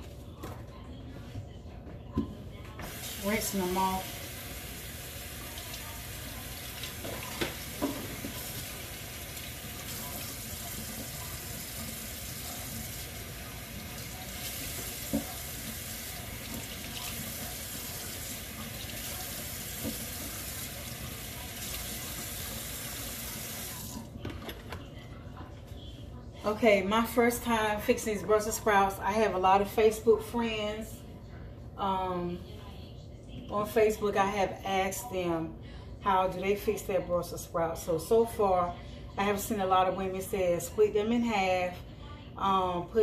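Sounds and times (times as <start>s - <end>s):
tap water running into sink: 2.8s - 24.0s.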